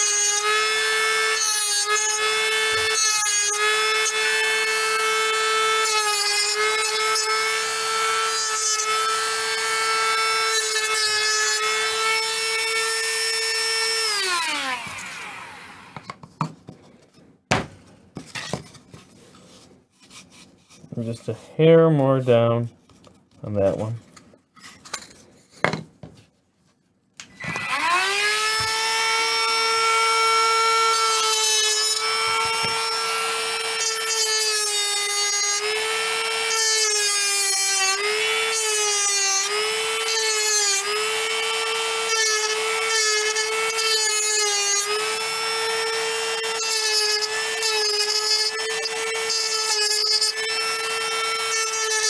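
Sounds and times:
rotary tool whining: 0:27.2 - 0:52.0.

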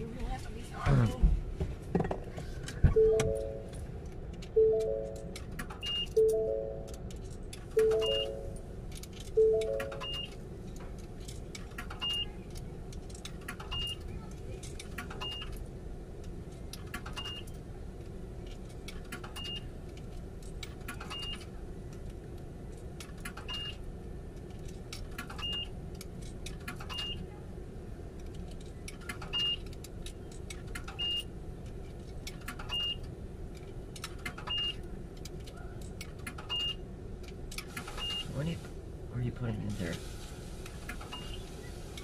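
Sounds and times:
short high-pitched beep: 0:03.0 - 0:03.7, 0:07.8 - 0:08.6, 0:09.4 - 0:10.3.

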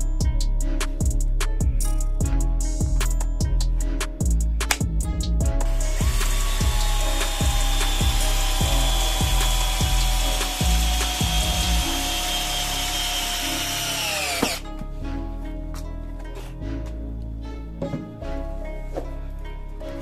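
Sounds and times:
background music with steady beat: 0:00.0 - 0:20.0
cordless drill driving screw into wood: 0:06.0 - 0:14.6.

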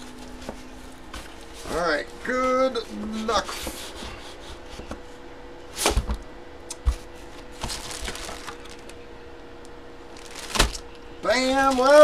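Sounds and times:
plastic bag crinkling: 0:07.5 - 0:09.0, 0:10.1 - 0:10.9.

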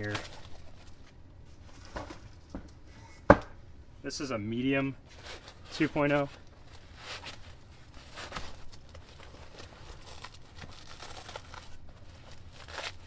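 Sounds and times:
fabric rustling and scraping: 0:05.1 - 0:13.0.

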